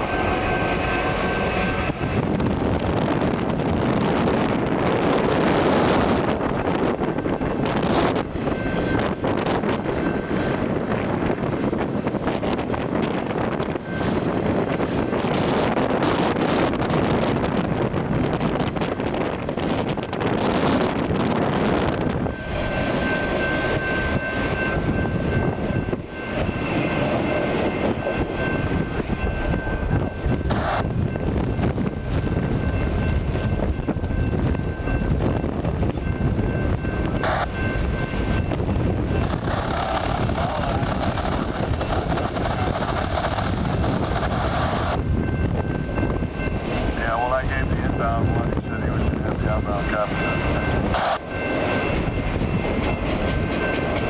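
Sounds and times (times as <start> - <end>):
high-pitched train squeal: 0.0 - 2.4, 12.3 - 16.6, 32.6 - 54.0
train wheels rumbling on rails: 0.0 - 54.0
wind buffeting microphone: 0.0 - 54.0.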